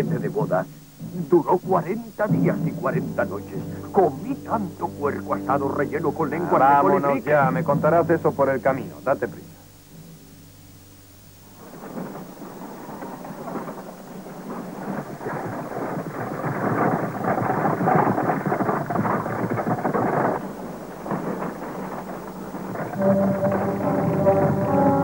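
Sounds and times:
music: 0.0 - 12.2, 23.0 - 25.0
wooden wagon wheels rattling: 0.0 - 25.0.

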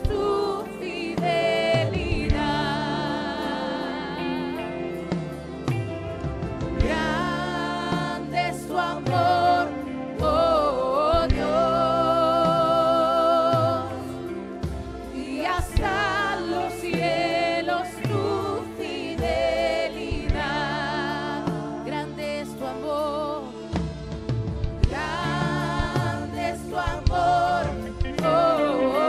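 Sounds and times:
person singing with vibrato: 0.0 - 5.8, 6.8 - 24.0, 24.8 - 29.0
instrumental accompaniment: 0.0 - 29.0.

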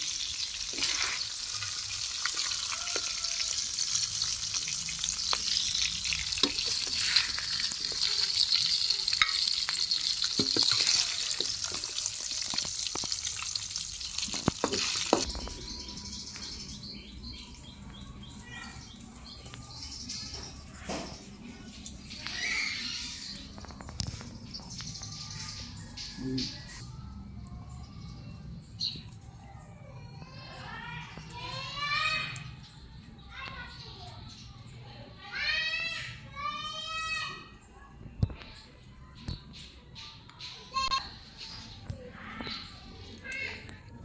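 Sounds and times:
food sizzling in a pan: 0.0 - 16.8.

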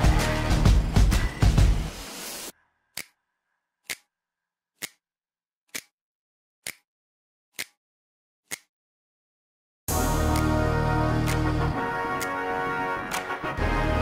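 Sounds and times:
background music: 0.0 - 2.3, 9.9 - 14.0.

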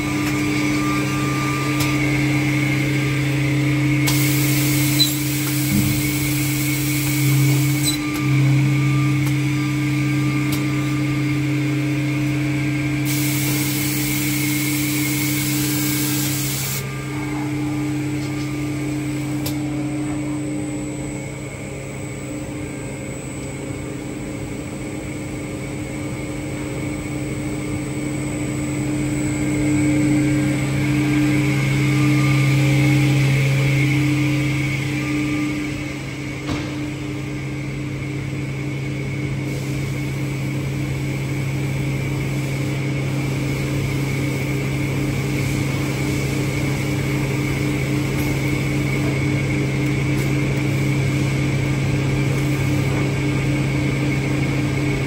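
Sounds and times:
machine motors humming: 0.0 - 55.0
hiss: 4.1 - 7.8, 13.1 - 16.8.

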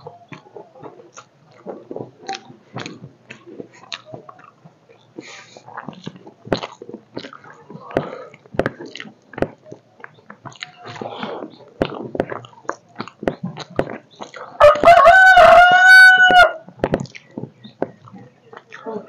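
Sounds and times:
chewing: 0.0 - 15.6, 16.6 - 19.0
rooster crowing: 14.6 - 16.6.

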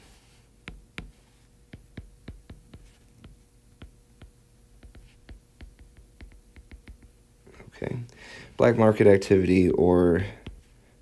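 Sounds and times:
faint steady hum: 0.0 - 11.0
stylus tapping on screen: 0.6 - 7.2, 10.4 - 10.6.

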